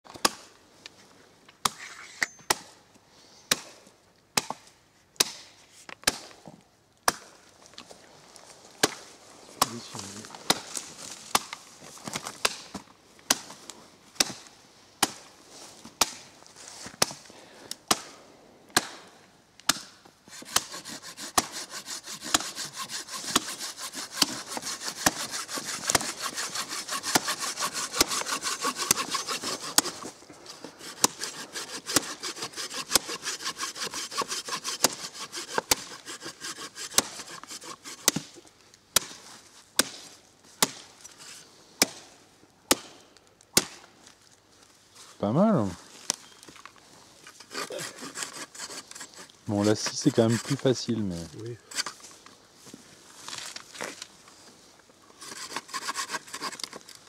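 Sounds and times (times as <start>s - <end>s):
machete chopping branch: 4.4s - 6.4s, 7.0s - 7.3s, 9.6s - 9.8s, 10.4s - 11.6s, 12.2s - 13.6s, 14.2s - 15.3s, 16.0s - 16.3s, 17.8s - 21.6s, 22.2s - 30.0s, 30.8s - 39.2s, 39.8s - 40.9s, 41.8s - 42.1s, 42.7s - 43.9s
saw rasping through wood: 20.3s - 38.2s, 47.4s - 52.0s, 55.2s - 56.8s.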